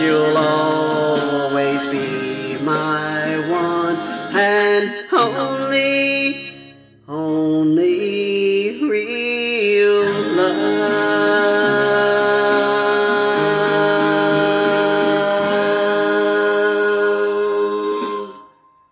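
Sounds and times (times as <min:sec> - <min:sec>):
woman singing into microphone: 0:00.0 - 0:05.4, 0:09.9 - 0:18.5
karaoke backing track: 0:00.0 - 0:18.9.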